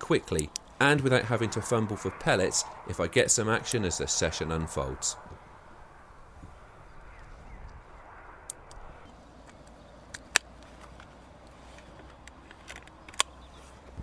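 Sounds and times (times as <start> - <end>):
air rifle clicks: 9.4 - 13.5.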